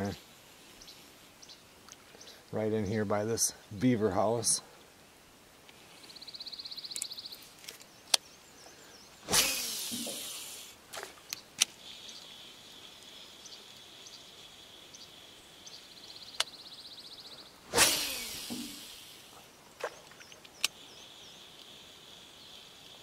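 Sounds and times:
fishing rod cast whoosh: 9.2 - 11.2, 17.7 - 19.2
fishing reel whirring: 9.3 - 10.8, 17.7 - 19.3.

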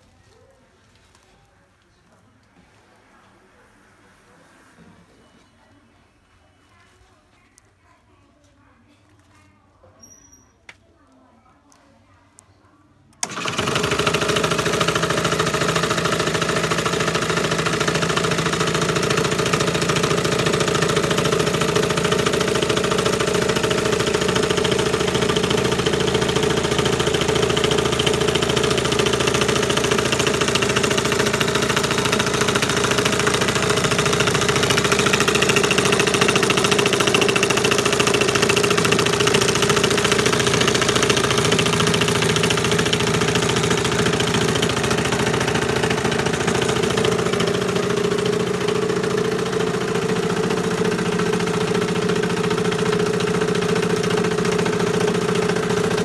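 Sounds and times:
table jigsaw motor humming: 13.2 - 56.0.

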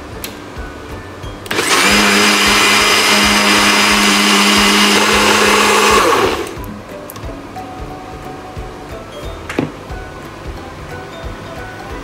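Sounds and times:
blender whirring: 1.5 - 6.6.

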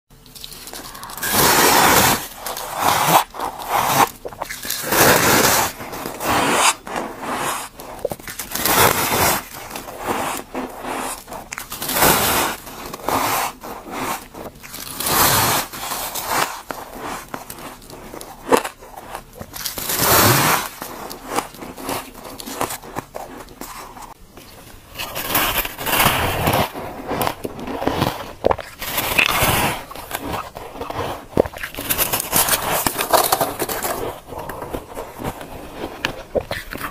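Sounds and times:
frost being bitten and chewed: 2.2 - 15.1, 24.9 - 36.9.

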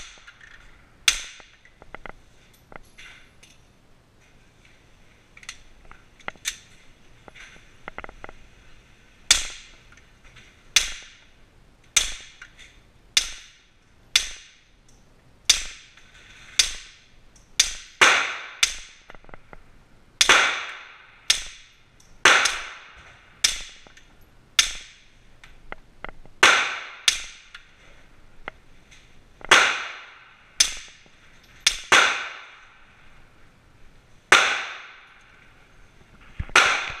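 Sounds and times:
suppressed pistol shots: 22.2 - 23.8, 29.4 - 31.0
ringing echo of indoor range: 29.4 - 33.4, 34.3 - 35.7, 36.5 - 37.0.

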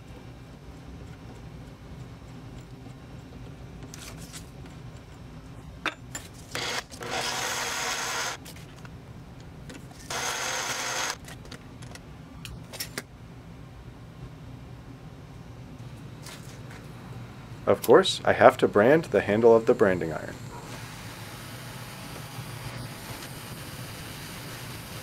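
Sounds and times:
low steady hum: 11.2 - 24.1.

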